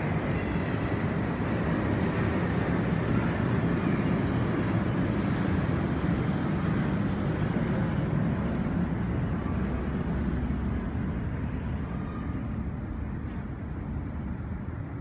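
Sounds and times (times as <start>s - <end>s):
distant city noise: 0.0s - 15.0s
low rumble of wind: 0.0s - 15.0s.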